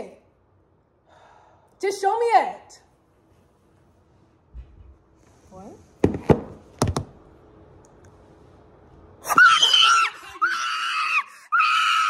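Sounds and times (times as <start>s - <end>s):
knocks: 6.0s - 7.2s
young woman screaming excitedly: 9.2s - 12.0s.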